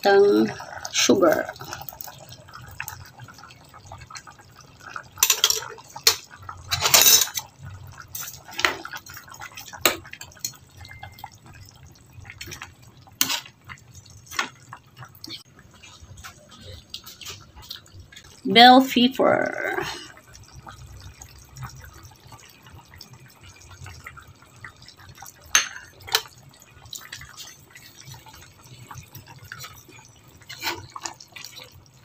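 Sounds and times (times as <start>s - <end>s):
metal spoon scraping a pan: 5.2s - 8.8s, 13.2s - 13.5s, 30.4s - 31.5s.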